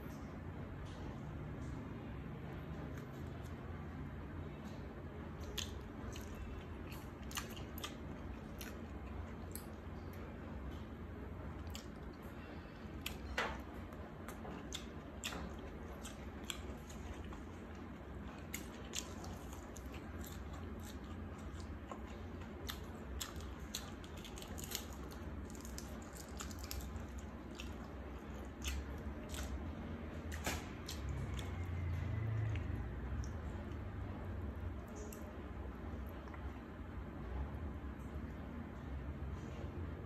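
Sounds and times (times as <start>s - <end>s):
steady low hum: 0.0s - 40.0s
chewing with wet mouth clicks: 5.4s - 10.2s, 11.6s - 12.3s, 13.0s - 33.8s.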